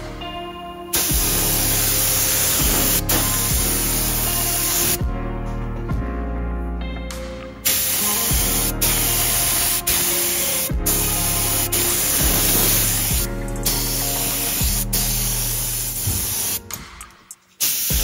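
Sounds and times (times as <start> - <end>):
spray gun hissing: 0.9 - 5.0, 7.6 - 16.7, 17.6 - 18.0.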